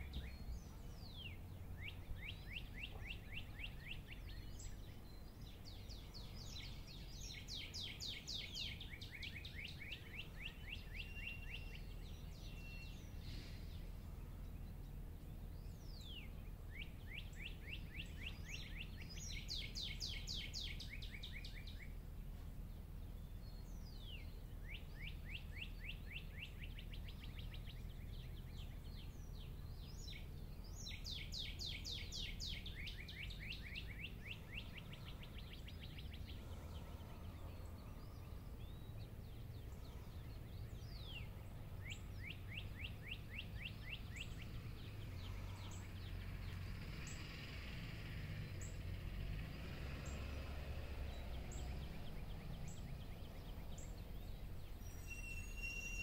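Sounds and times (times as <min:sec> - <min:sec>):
songbird trilling: 0:00.0 - 0:22.0, 0:23.1 - 0:47.3, 0:51.1 - 0:56.0
low background rumble: 0:32.3 - 0:55.0.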